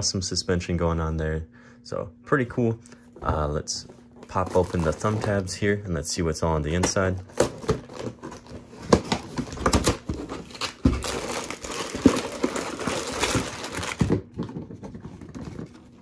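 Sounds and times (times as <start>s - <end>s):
plastic bags rustling: 4.0s - 5.6s, 6.9s - 16.0s.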